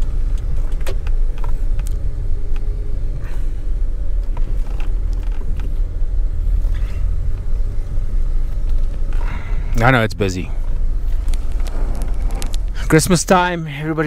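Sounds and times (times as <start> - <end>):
car engine and road rumble: 0.0 - 14.0
small clicks and creaks: 4.2 - 5.8, 10.7 - 12.8.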